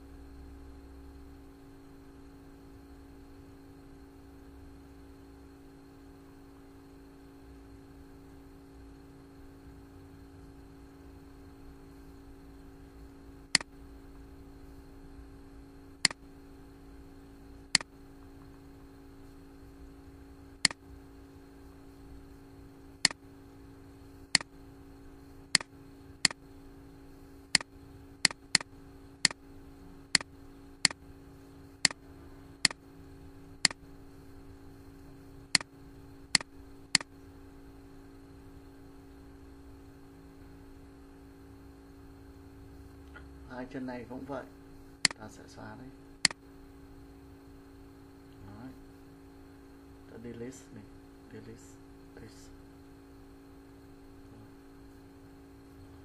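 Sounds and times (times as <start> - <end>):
low electrical hum: 0.0 - 56.0
computer mouse clicking: 13.5 - 13.7, 25.5 - 26.4, 27.5 - 29.4, 36.3 - 37.1.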